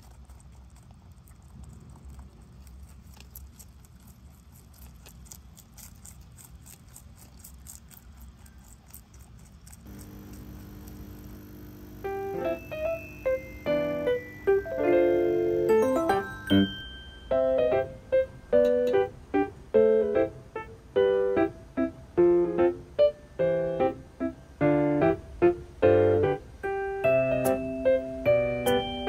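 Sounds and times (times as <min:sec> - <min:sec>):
rabbit chewing lettuce: 0:00.0 - 0:11.4
piano music: 0:12.0 - 0:29.0.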